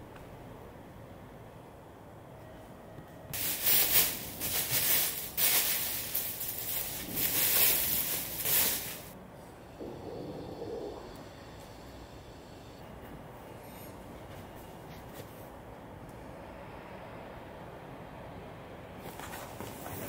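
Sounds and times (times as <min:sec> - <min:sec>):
plastic wrapping crinkling: 0:03.4 - 0:09.2.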